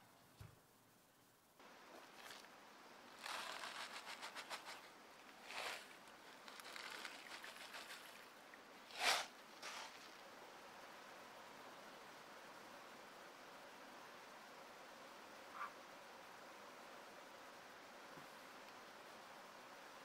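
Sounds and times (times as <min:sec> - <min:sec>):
salt grains pattering: 0:03.1 - 0:08.3.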